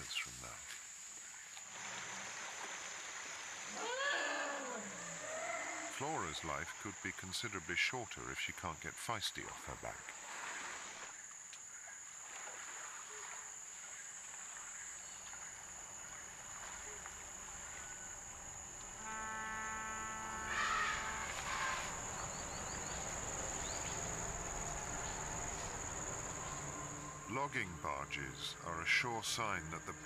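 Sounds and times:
insect drone: 0.0s - 30.0s
animal call with overtones: 3.7s - 6.0s, 20.4s - 21.9s
harsh animal calls: 3.7s - 6.0s, 20.4s - 23.0s.

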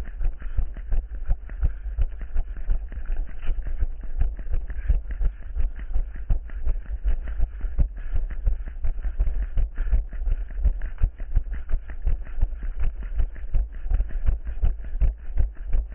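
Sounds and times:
deep rumble: 0.0s - 15.9s
running footsteps: 0.0s - 15.9s.

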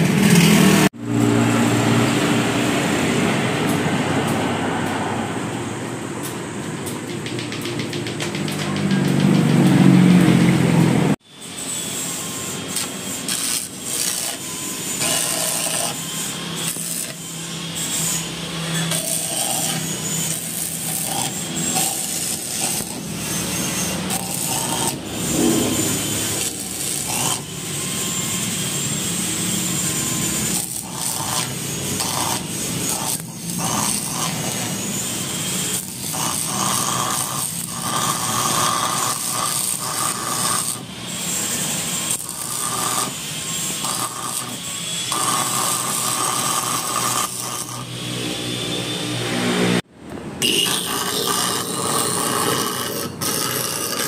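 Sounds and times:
metal tools scraping and grinding: 11.4s - 48.0s.

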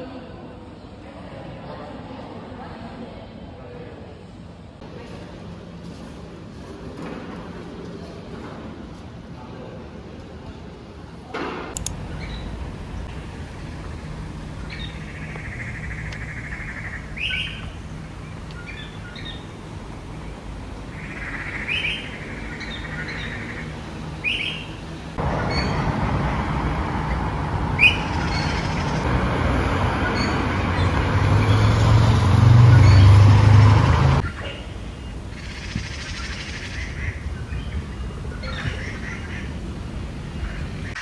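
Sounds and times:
road traffic: 10.9s - 41.0s
birds chirping: 11.8s - 41.0s
low engine hum: 11.8s - 41.0s.

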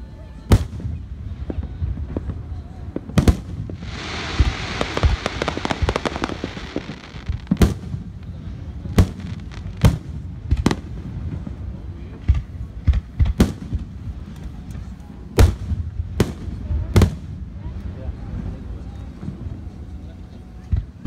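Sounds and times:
crackling hiss of fireworks: 0.0s - 21.0s
firework pops: 3.0s - 10.9s
firework shells booming: 3.2s - 11.1s.

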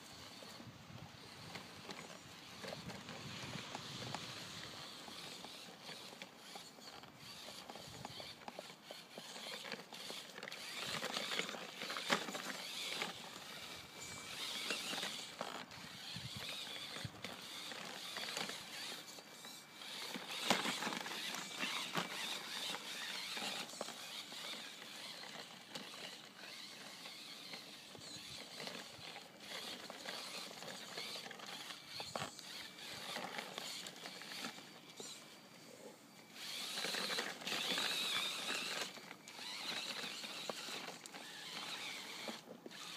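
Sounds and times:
toy car drivetrain whirring: 0.0s - 42.9s.

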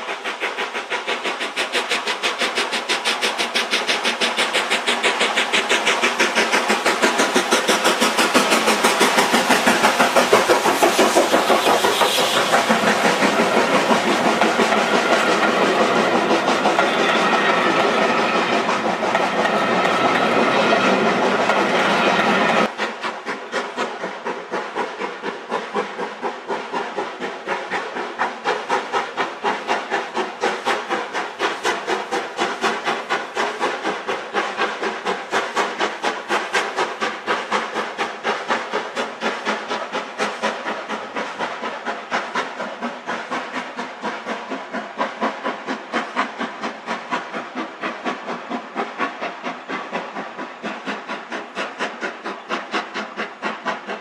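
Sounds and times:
steam hissing: 0.0s - 54.0s
steam locomotive chuffing: 0.0s - 54.0s.

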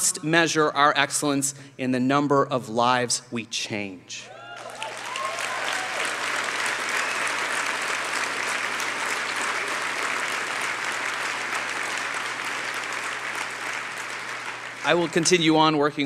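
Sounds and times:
audience applauding: 4.4s - 16.0s.

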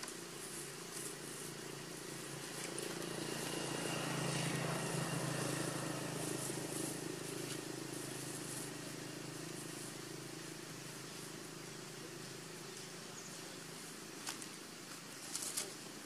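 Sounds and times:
vehicle engine droning past: 0.2s - 12.7s.

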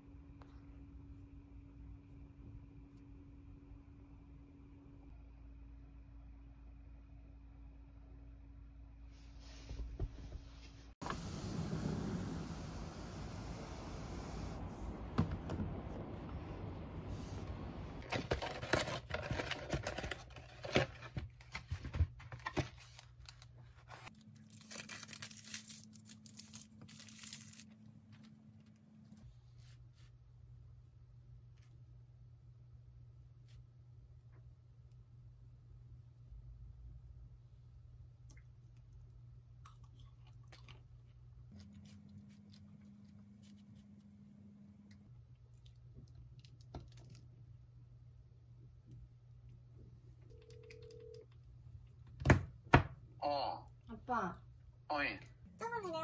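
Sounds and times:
low room hum: 0.0s - 56.0s
paper bag and cardboard box rustling: 18.0s - 27.8s
plastic film peeling: 22.8s - 27.8s.

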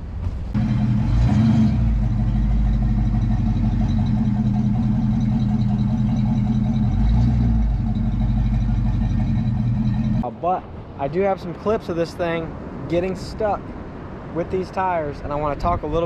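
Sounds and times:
truck engine running: 0.1s - 10.2s.

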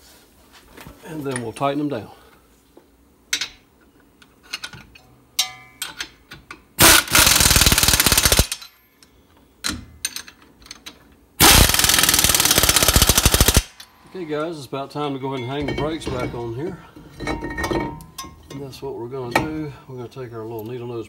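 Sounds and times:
impact wrench hammering: 6.8s - 8.7s, 11.4s - 13.9s.

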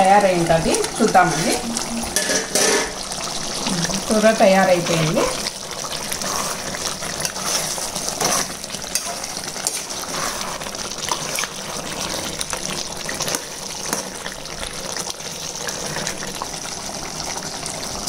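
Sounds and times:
curry bubbling in a pan: 0.0s - 18.0s
ladle stirring gravy: 5.2s - 14.6s.

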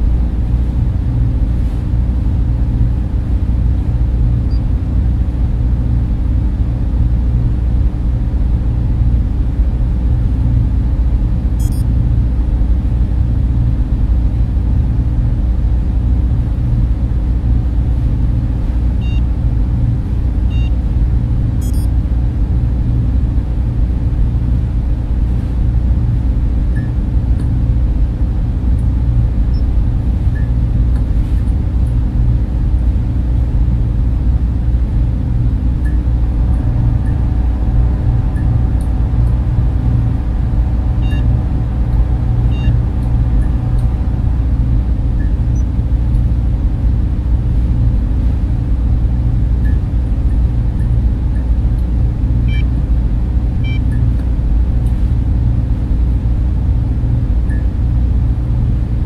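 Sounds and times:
deep machinery hum: 0.0s - 59.0s
faint electronic beeps and chirps: 11.6s - 11.9s, 19.0s - 19.3s, 20.5s - 20.8s, 21.6s - 21.9s, 41.0s - 41.4s, 42.4s - 42.8s.

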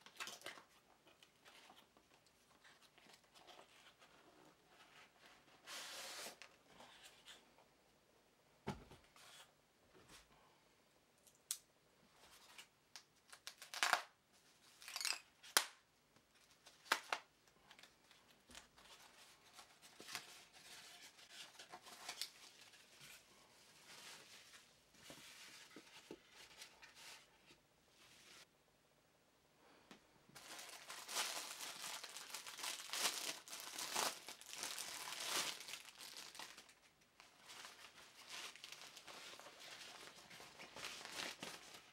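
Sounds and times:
cardboard box and foam rustling: 37.3s - 41.9s.

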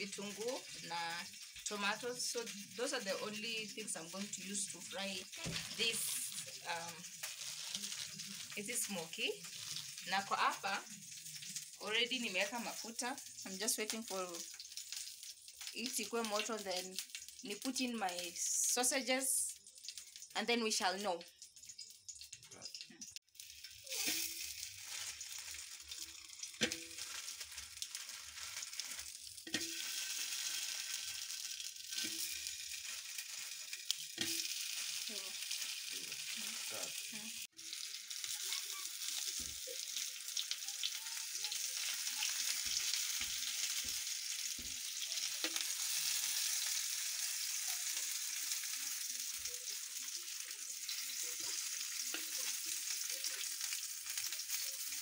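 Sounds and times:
sausages sizzling in a frying pan: 0.0s - 55.0s
metal tongs knocking on a pan: 26.4s - 27.5s, 34.2s - 34.5s.

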